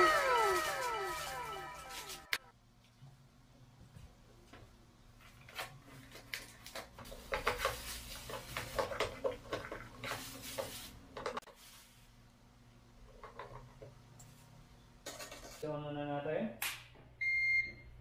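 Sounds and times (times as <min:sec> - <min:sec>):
plastic wrapping crinkling: 0:00.0 - 0:02.4.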